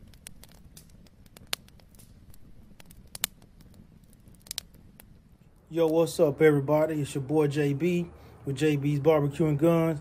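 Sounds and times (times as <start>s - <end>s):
wood fire crackling: 0.0s - 10.0s.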